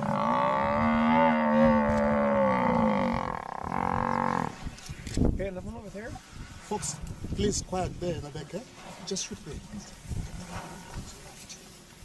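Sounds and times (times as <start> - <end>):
buffalo bellowing: 0.0 - 4.6.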